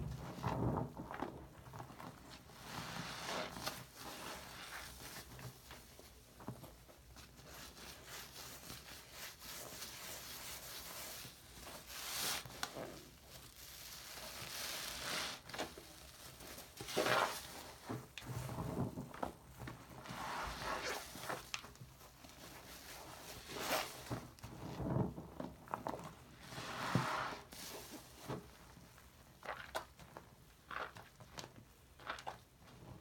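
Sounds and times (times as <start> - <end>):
sponge squelching in lather: 16.7 - 17.6.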